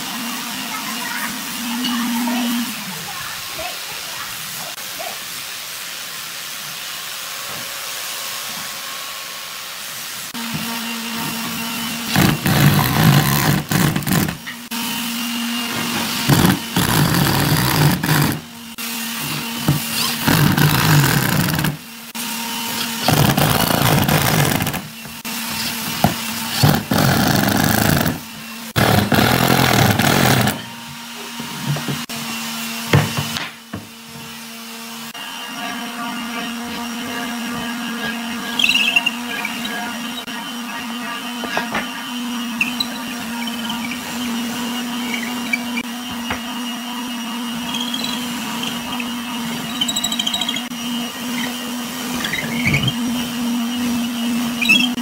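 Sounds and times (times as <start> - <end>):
power drill driving screws into wood: 12.0 - 14.5, 15.9 - 18.4, 19.2 - 21.8, 22.7 - 24.9, 25.5 - 30.7.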